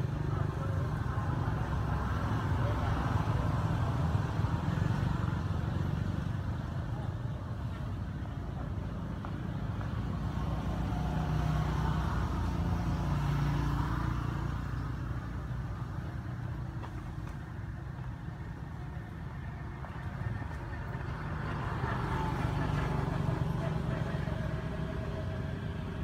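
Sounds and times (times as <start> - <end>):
vehicle engine drone: 0.0 - 26.0.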